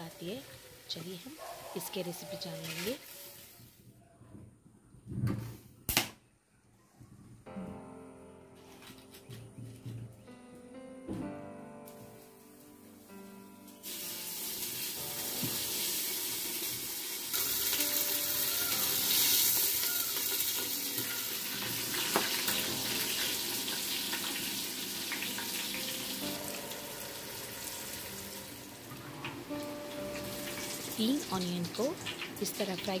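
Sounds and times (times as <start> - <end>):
onions sizzling in oil: 0.0 - 3.6, 13.8 - 33.0.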